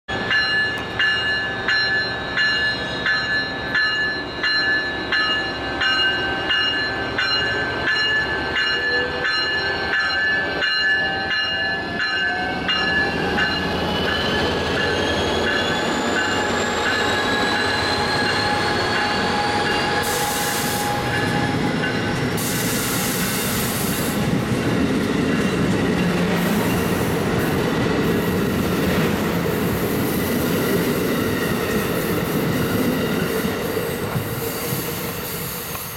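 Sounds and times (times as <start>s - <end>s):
locomotive bell ringing: 0.1s - 22.6s
locomotive whine accelerating: 0.1s - 35.9s
train wheels on rails: 0.1s - 35.9s
wheel squeals: 13.2s - 22.4s.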